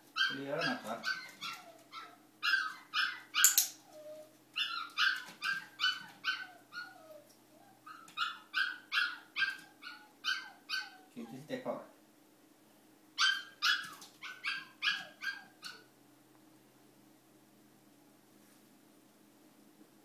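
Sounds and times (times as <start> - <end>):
dog yapping: 0.2 - 11.1, 13.2 - 15.9.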